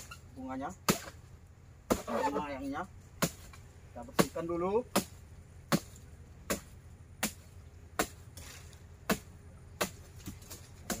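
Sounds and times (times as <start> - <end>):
blade chopping palm fronds: 0.0 - 11.0.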